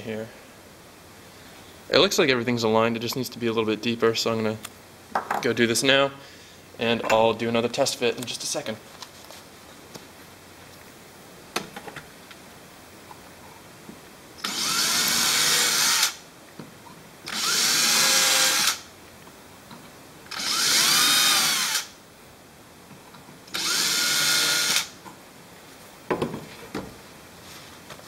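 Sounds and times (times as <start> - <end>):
power drill drilling: 14.4 - 16.2, 17.3 - 18.8, 20.3 - 21.9, 23.5 - 24.9.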